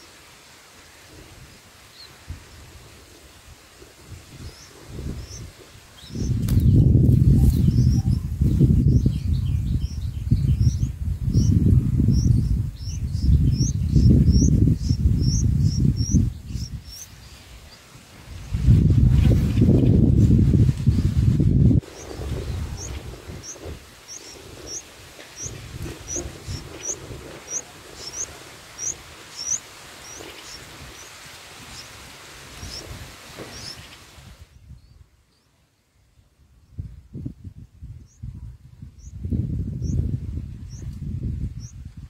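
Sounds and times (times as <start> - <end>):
nestlings chirping: 4.2 - 35.5, 39.0 - 40.0.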